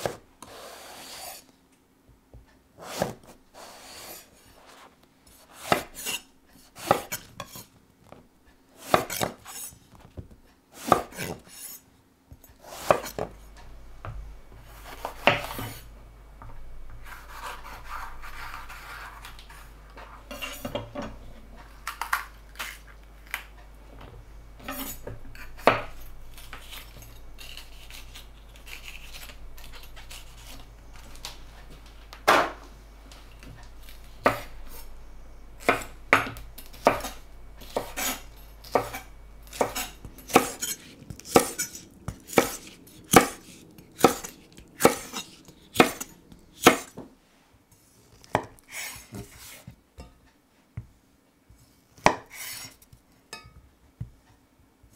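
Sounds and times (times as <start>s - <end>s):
knife chopping on wooden board: 5.6s - 6.2s, 6.8s - 7.6s, 8.8s - 9.7s, 10.8s - 11.6s, 12.6s - 13.4s, 14.9s - 15.8s, 34.2s - 34.8s, 35.6s - 47.0s.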